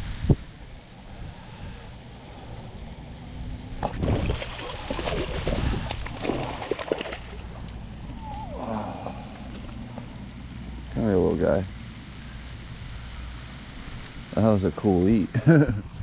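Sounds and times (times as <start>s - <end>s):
wind rumble on microphone: 0.0s - 8.6s
fish splashing at water surface: 3.8s - 8.0s.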